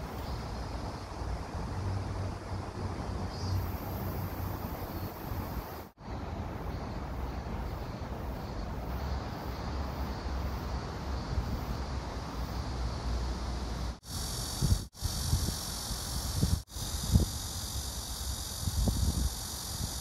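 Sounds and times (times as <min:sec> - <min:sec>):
distant traffic rumble: 0:00.0 - 0:14.0.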